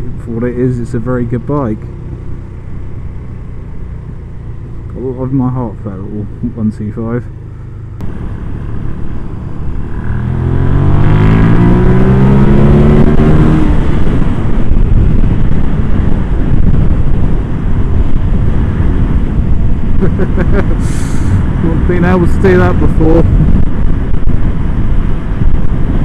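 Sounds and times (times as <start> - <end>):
motorcycle engine revving: 7.2 - 23.0
wind rushing over helmet: 8.0 - 26.0.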